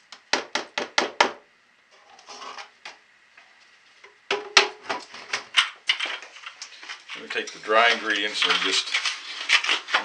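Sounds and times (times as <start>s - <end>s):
sugar rustling: 6.2s - 10.0s.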